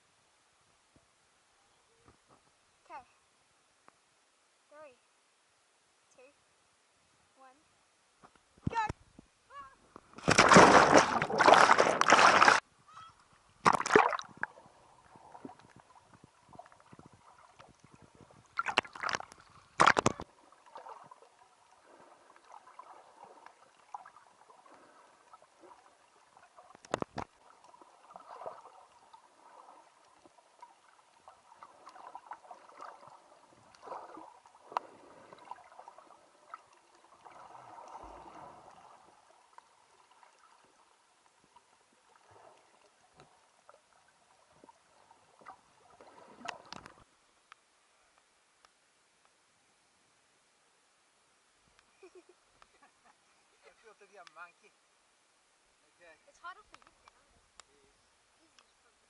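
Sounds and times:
water rushing: 0:10.1 - 0:47.1
water splashes: 0:10.1 - 0:47.1.

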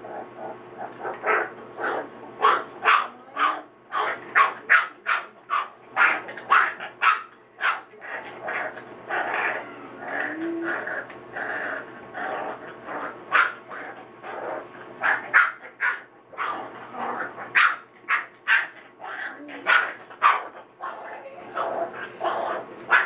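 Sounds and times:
puppy growling: 0:00.0 - 0:23.0
puppy barking and yipping: 0:02.4 - 0:07.9, 0:13.3 - 0:13.6, 0:15.0 - 0:16.6, 0:17.5 - 0:20.6.

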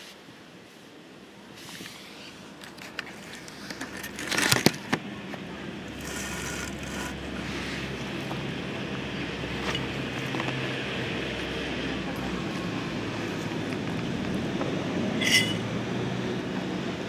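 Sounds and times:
low mechanical hum: 0:00.0 - 0:17.0
scrape near microphone: 0:01.6 - 0:02.4, 0:06.0 - 0:08.0.

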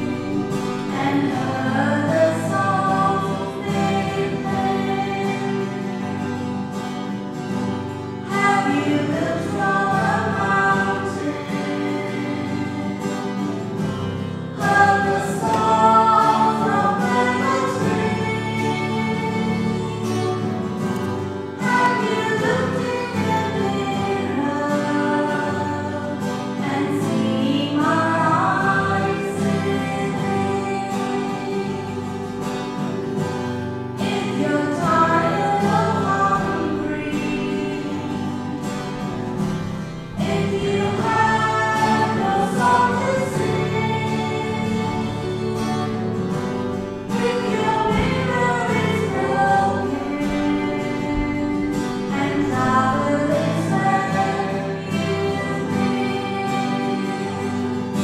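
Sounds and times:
choir singing a hymn: 0:00.0 - 0:58.0.

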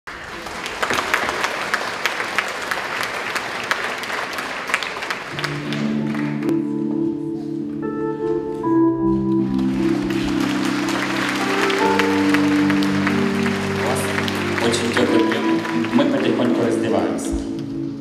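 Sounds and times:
audience applauding: 0:00.1 - 0:07.0, 0:09.4 - 0:17.5
orchestra playing soft chords: 0:05.3 - 0:18.0.

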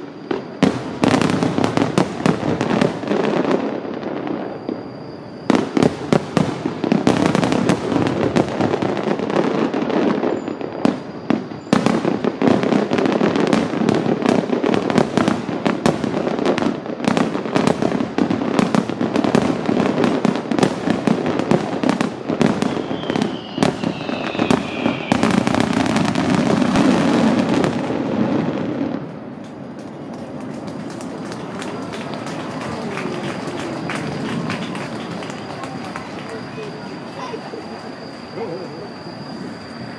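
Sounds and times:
falling firework whistle: 0:00.0 - 0:39.9
fireworks bursting and crackling: 0:00.0 - 0:39.9.

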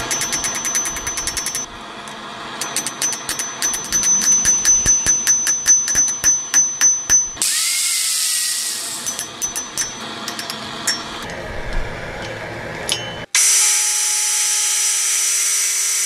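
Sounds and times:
hammer ringing on anvil: 0:00.0 - 0:01.7, 0:02.6 - 0:07.4, 0:09.0 - 0:11.3, 0:12.9 - 0:13.4
angle grinder running: 0:07.4 - 0:11.6, 0:13.4 - 0:16.0.

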